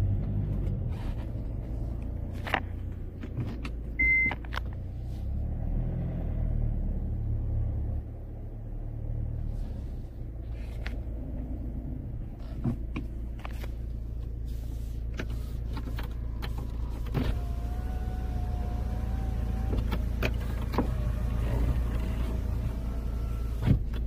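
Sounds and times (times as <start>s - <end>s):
idling car engine hum: 0.0s - 24.0s
power window motor whine: 17.0s - 24.0s.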